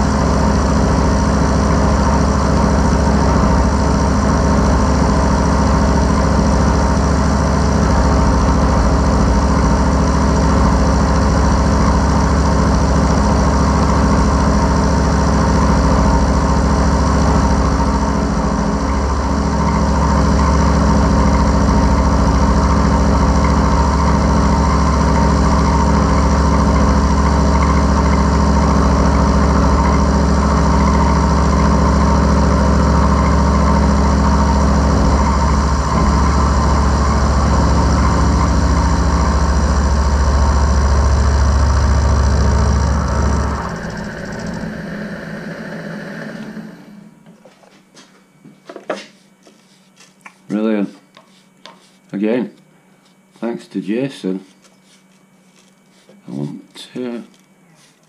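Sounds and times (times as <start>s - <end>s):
milling machine cutting steel: 17.4s - 46.8s.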